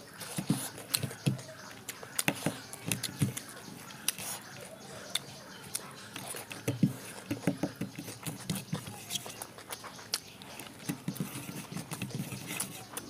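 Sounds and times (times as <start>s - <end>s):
person chewing food: 0.0s - 13.0s
fingers tapping on plate: 6.5s - 9.0s.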